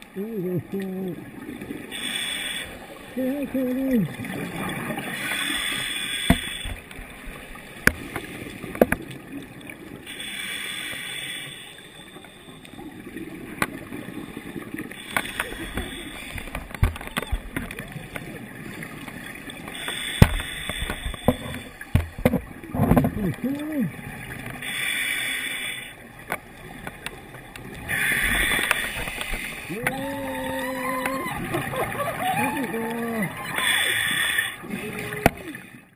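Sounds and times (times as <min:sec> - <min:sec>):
diver humming through regulator: 0:00.2 - 0:01.3, 0:29.6 - 0:35.6.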